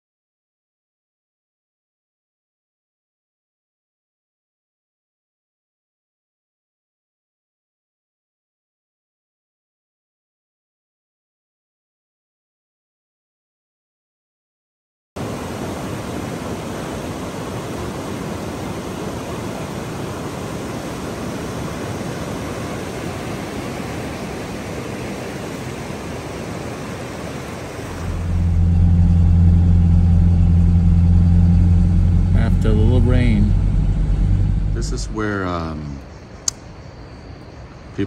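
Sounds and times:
rushing river rapids: 0:15.2 - 0:28.5
car drone from inside cabin: 0:27.8 - 0:36.0.

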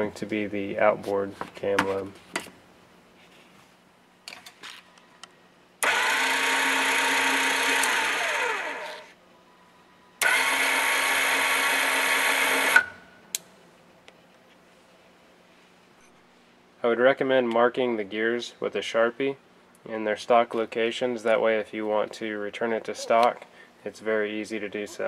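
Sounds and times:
electric gear motor running: 0:05.8 - 0:09.1, 0:10.2 - 0:12.8
motor stop click: 0:05.8 - 0:09.1.

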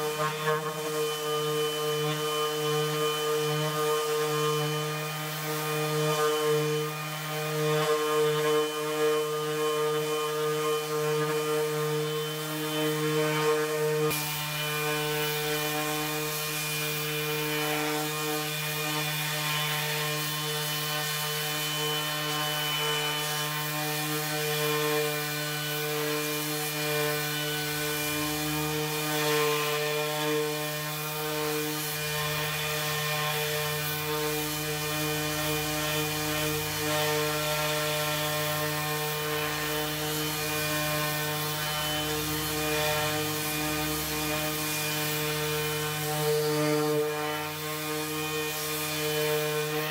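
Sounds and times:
orbital sander motor hum: 0:00.0 - 0:49.9
sandpaper rubbing on wood: 0:00.0 - 0:49.9.

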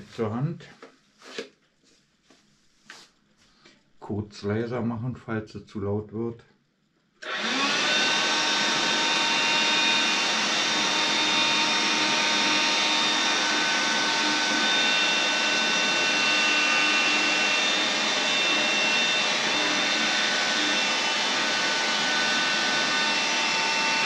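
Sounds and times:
handheld vacuum cleaner running: 0:07.2 - 0:24.0.

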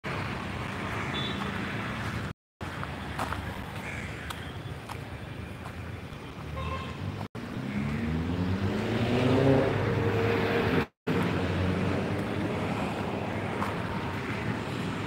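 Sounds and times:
steady traffic haze: 0:00.0 - 0:15.0
vehicle engine accelerating: 0:07.4 - 0:13.2.

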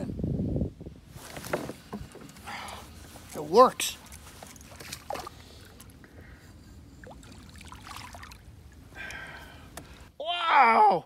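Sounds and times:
wind rumbling on microphone: 0:00.0 - 0:03.3
water lapping against boat: 0:01.6 - 0:06.3, 0:06.9 - 0:10.1.

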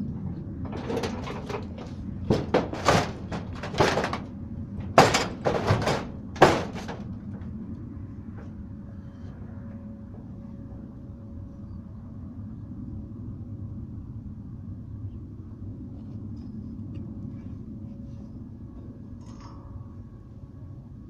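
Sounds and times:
footsteps and knocks on metal roof: 0:00.6 - 0:07.6.

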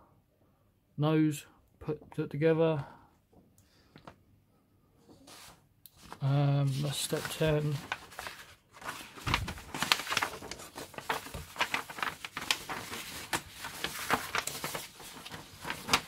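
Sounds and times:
paper pages rustling: 0:05.1 - 0:16.0.

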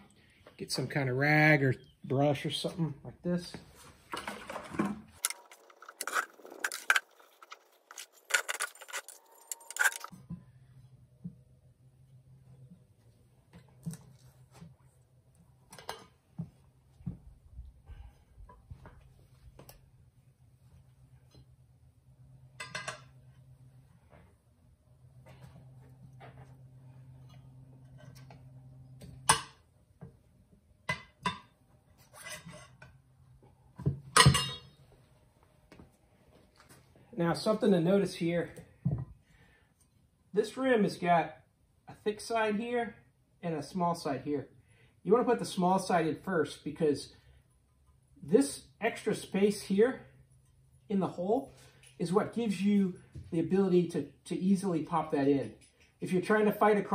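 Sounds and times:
brush scraping in plastic bucket: 0:04.4 - 0:10.1
tire spoon clanking on metal rim: 0:34.2 - 0:34.8.

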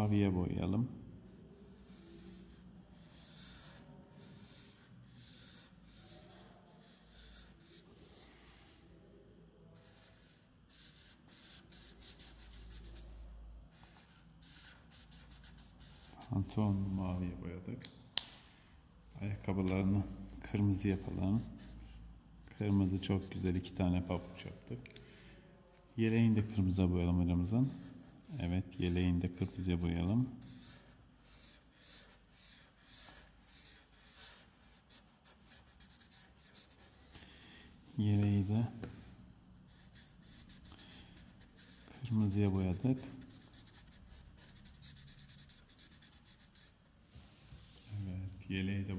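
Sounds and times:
marker scratching on paper: 0:01.3 - 0:08.9, 0:09.8 - 0:17.2, 0:19.4 - 0:22.0, 0:22.6 - 0:24.4, 0:27.6 - 0:38.6, 0:39.7 - 0:47.9.

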